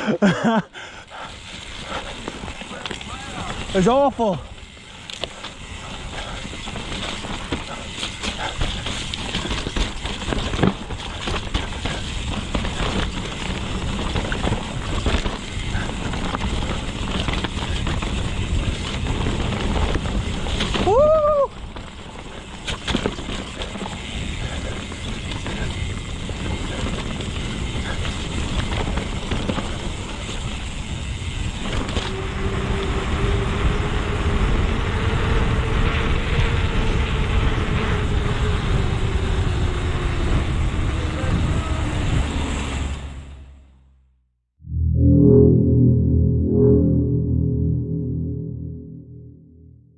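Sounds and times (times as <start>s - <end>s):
wind and tyre noise: 0.0s - 43.8s
bike rattling and knocking: 1.5s - 32.1s
steady hum: 44.6s - 49.9s.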